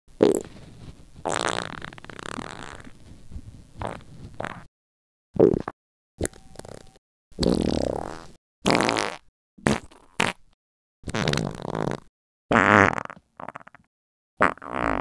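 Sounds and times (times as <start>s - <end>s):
sputtering farts: 0.2s - 0.5s, 1.2s - 3.0s, 3.8s - 4.7s, 7.4s - 10.4s, 11.1s - 15.0s.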